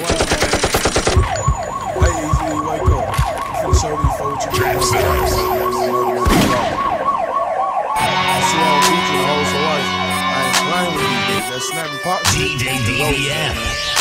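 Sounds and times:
siren-like wail: 1.0s - 12.0s
deep booming drum hits: 1.2s - 4.6s.

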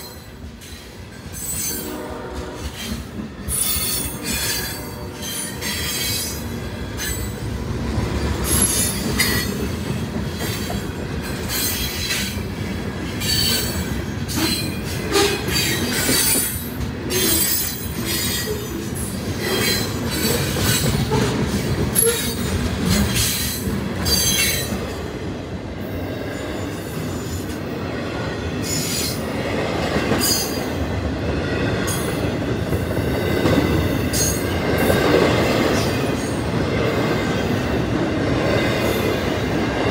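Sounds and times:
train cars clanking: 0.0s - 25.4s, 26.2s - 39.9s
train wheels rumbling on rail: 0.0s - 39.9s.

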